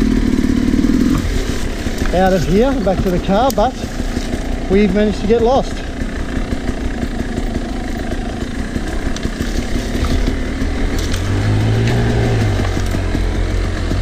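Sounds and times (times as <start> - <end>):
two-stroke motorcycle engine running: 0.0 - 14.0.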